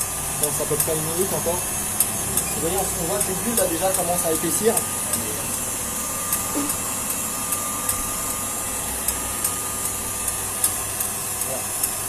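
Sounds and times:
motor hum with high whine: 0.0 - 12.0.

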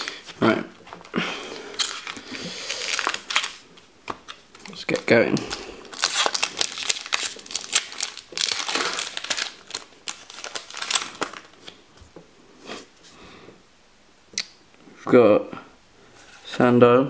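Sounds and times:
foil wrapper crinkling and tearing: 0.0 - 0.3, 1.6 - 11.8.

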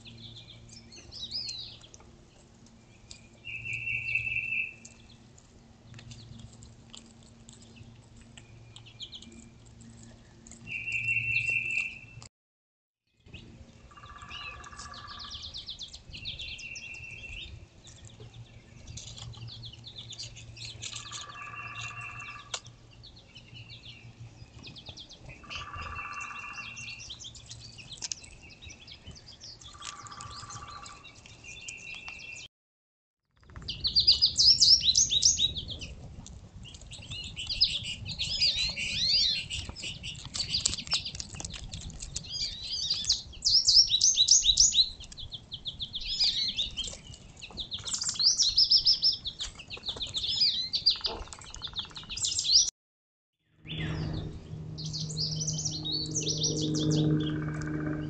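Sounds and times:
songbirds singing: 0.0 - 12.3, 13.1 - 32.5, 33.4 - 52.7, 53.5 - 58.0.

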